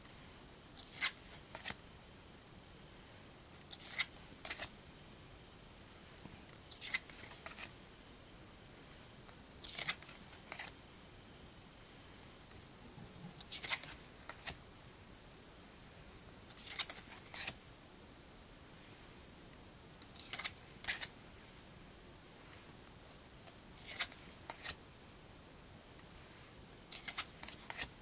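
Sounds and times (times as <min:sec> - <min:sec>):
cards snapping and sliding: 0:00.8 - 0:01.8, 0:03.6 - 0:04.7, 0:06.6 - 0:07.7, 0:09.6 - 0:10.7, 0:13.4 - 0:14.6, 0:16.5 - 0:17.6, 0:20.0 - 0:21.1, 0:23.8 - 0:24.8, 0:26.9 - 0:27.9.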